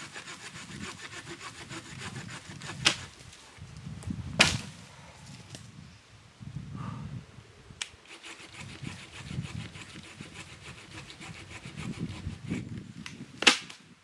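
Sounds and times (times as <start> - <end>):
hand saw cutting wood: 0.0 - 3.2, 8.0 - 12.7
sharp crack: 13.4 - 13.8.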